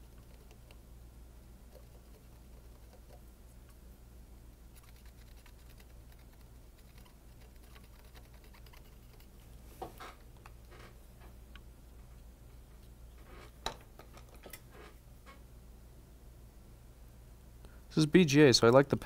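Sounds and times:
faint electrical hum: 0.0 - 19.0
tools clicking and scratching: 4.8 - 9.4.

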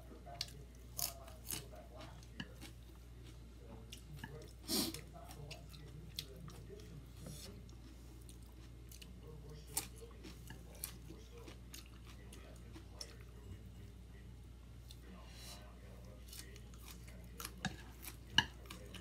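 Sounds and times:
steady low hum: 0.0 - 19.0
person chewing food: 0.2 - 13.7, 15.9 - 19.0.

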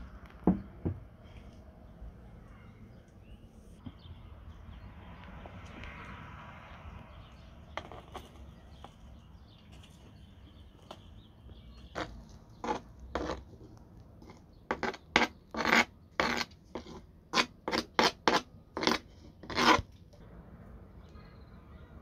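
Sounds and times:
knife scraping cutting board: 14.7 - 19.8.

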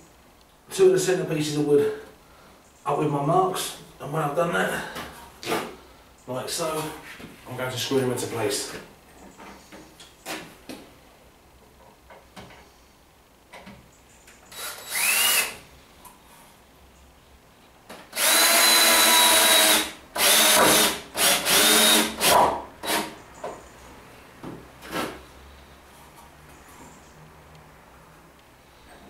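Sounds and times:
cordless drill driving screws: 14.5 - 15.6, 18.1 - 23.1.

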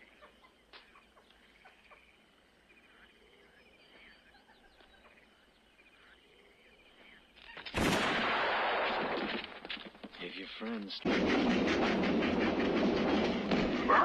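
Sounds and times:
birds chirping: 0.0 - 7.9.

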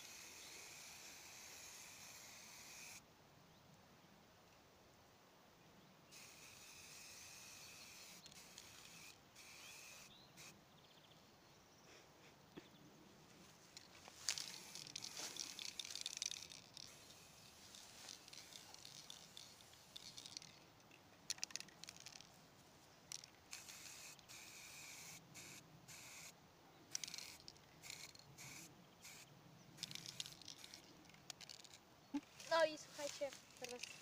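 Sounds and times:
spray-paint can hissing: 0.0 - 3.0, 6.1 - 10.5, 14.4 - 20.4, 23.5 - 26.3, 27.0 - 29.2.

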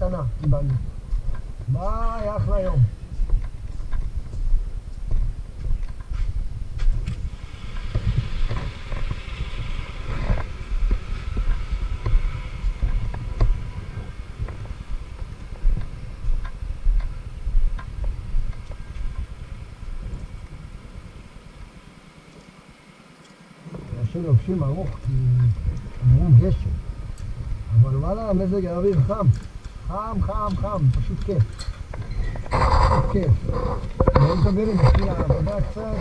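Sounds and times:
scooter engine rumble: 0.0 - 36.0.

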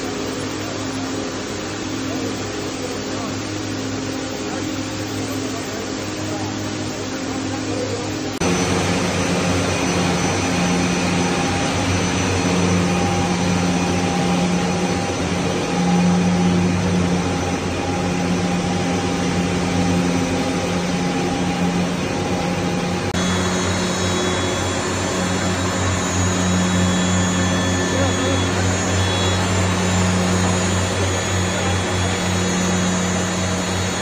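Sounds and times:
loud steady machine hiss: 0.0 - 34.0
low machine hum: 0.0 - 34.0.

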